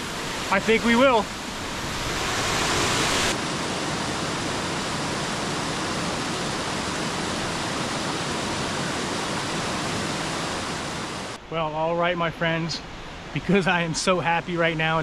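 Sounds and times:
creek water rushing over rocks: 0.0s - 4.9s.

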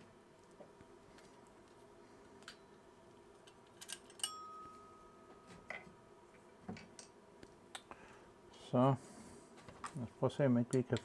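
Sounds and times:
metallic click with ringing tone: 4.2s - 5.2s.

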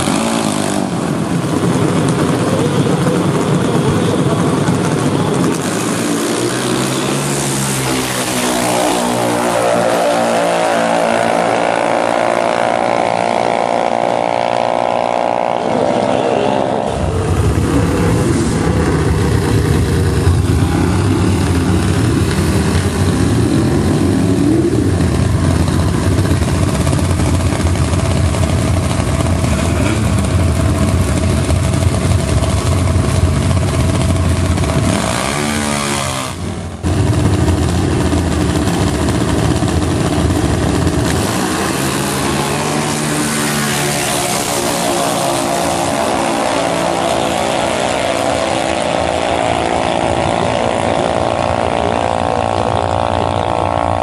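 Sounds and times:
engines at high revs: 0.0s - 54.0s
rough engine idling: 16.1s - 43.6s.

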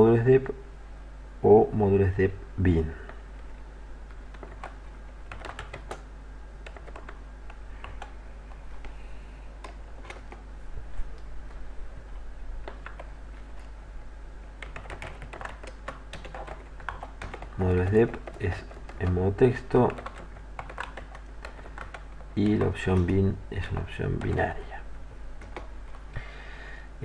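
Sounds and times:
low steady hum: 0.0s - 27.0s
keyboard typing: 4.0s - 8.2s, 9.6s - 10.4s, 12.6s - 13.7s, 14.6s - 24.6s, 25.4s - 26.0s.

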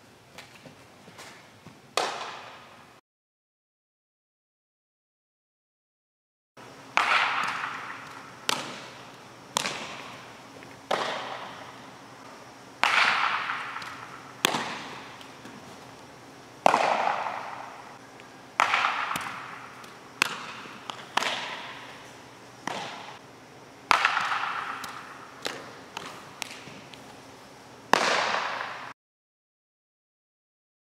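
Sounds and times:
baseballs smacking into gloves: 7.0s - 11.7s, 12.8s - 15.7s, 16.6s - 17.8s, 18.6s - 21.9s, 22.6s - 23.2s, 23.9s - 27.0s, 27.9s - 28.8s.

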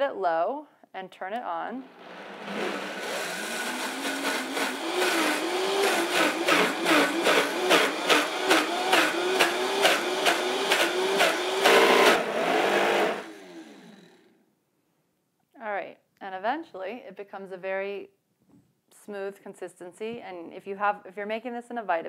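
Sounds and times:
blender motor running: 1.9s - 14.3s.

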